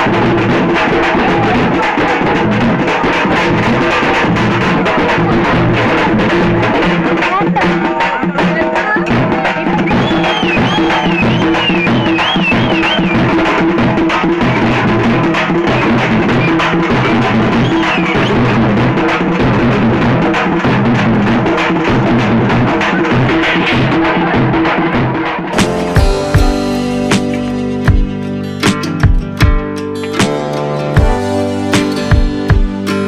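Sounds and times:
bass drums pounding: 0:00.0 - 0:33.0
high warbling tones: 0:09.1 - 0:24.2.

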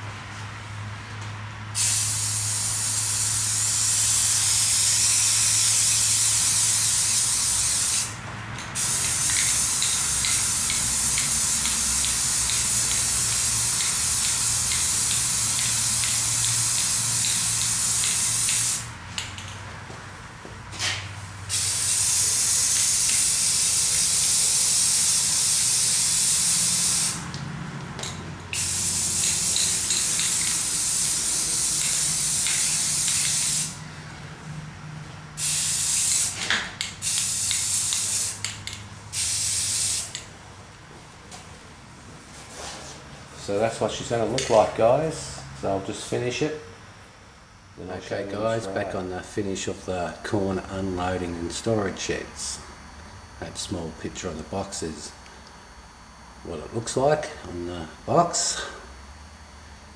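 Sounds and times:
spray paint can hissing: 0:01.8 - 0:08.1, 0:08.8 - 0:18.9, 0:21.5 - 0:27.2, 0:28.5 - 0:33.8, 0:35.4 - 0:40.2.

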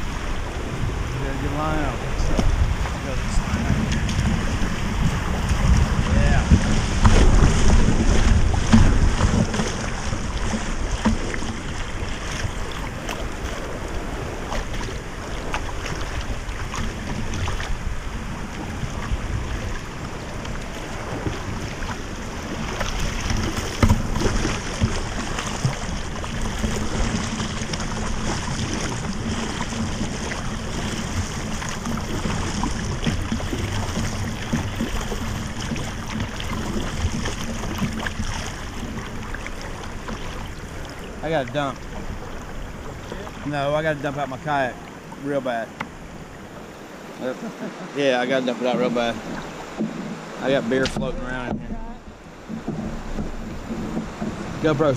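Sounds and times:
river water rushing: 0:00.0 - 0:54.9
water splashing against kayak: 0:00.0 - 0:54.9.

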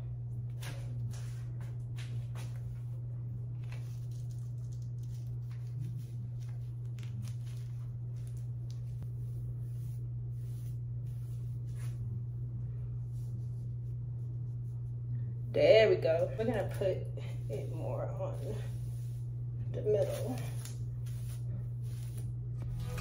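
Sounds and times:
steady low hum: 0:00.0 - 0:23.0
hands rustling through hair: 0:17.4 - 0:22.8.

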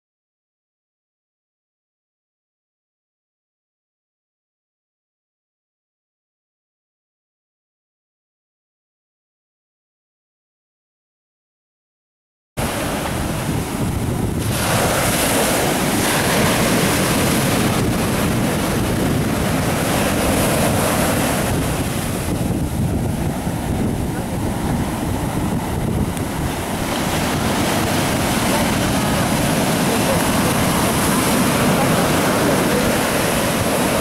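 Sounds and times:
surf on sandy shore: 0:12.6 - 0:34.0
wind buffeting microphone: 0:12.6 - 0:34.0.

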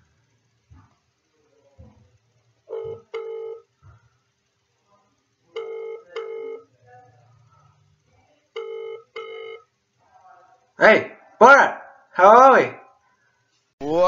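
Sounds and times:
phone ringback tone: 0:02.7 - 0:03.7, 0:05.6 - 0:06.7, 0:08.6 - 0:09.7.

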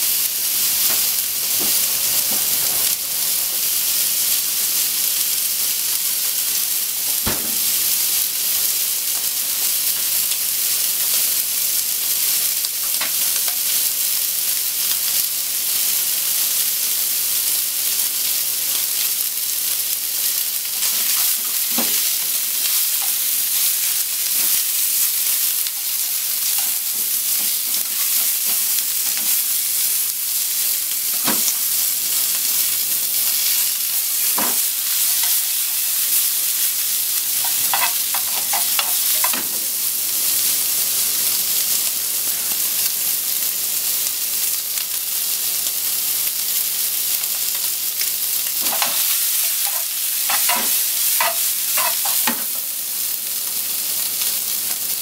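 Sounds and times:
meat sizzling in a frying pan: 0:00.0 - 0:55.0
sharp fat pops: 0:07.2 - 0:07.8.

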